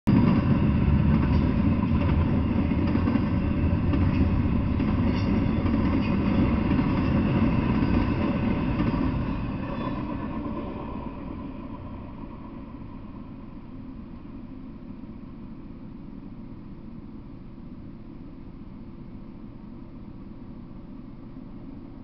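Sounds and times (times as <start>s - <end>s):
freight train wheels on rails: 0.1s - 15.0s.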